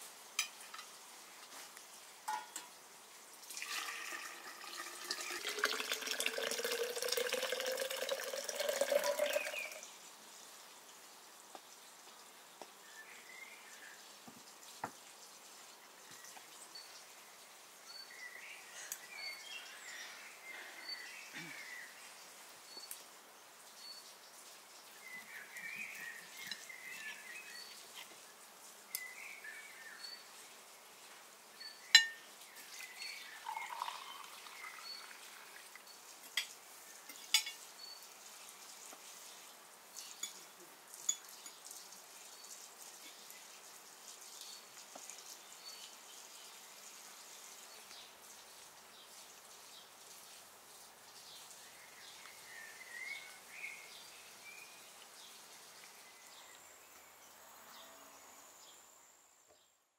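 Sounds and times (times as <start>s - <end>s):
birds chirping: 8.6s - 9.8s, 25.0s - 27.9s, 31.6s - 36.1s.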